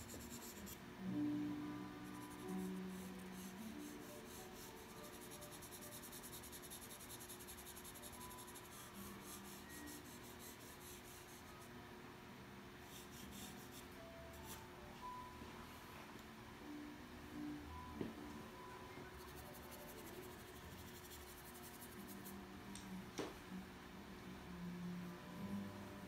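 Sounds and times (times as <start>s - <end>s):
charcoal pencil scratching paper: 0.0s - 0.8s, 2.0s - 11.7s, 12.9s - 14.6s, 19.2s - 22.3s
faint background music: 0.0s - 26.0s.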